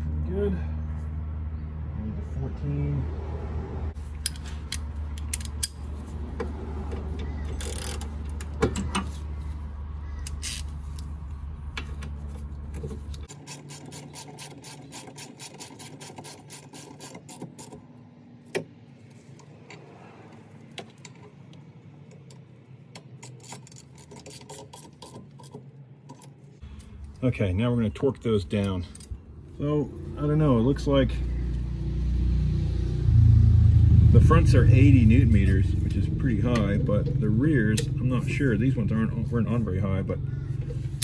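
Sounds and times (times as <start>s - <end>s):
hand ratchet clicking: 7.5s - 8.1s.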